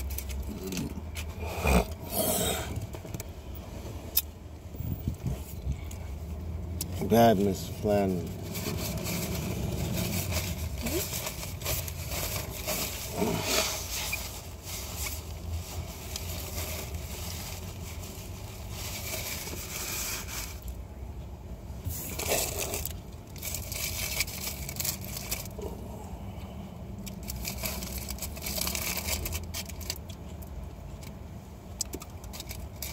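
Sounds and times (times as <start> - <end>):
low rumble: 7.7 - 12.6.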